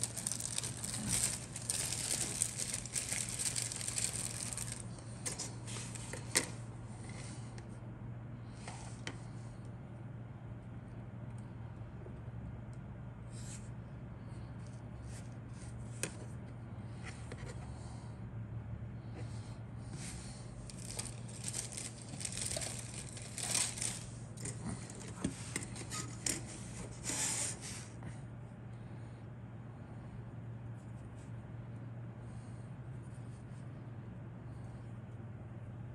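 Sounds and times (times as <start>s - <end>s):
plastic clicks and rustling: 0.0s - 6.6s, 20.7s - 26.5s
steady low hum: 0.0s - 35.9s.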